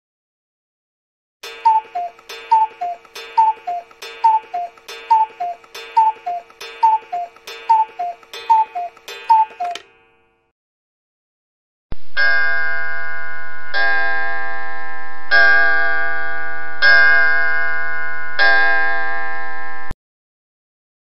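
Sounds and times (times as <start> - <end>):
pendulum clock ticking: 1.4 - 10.1.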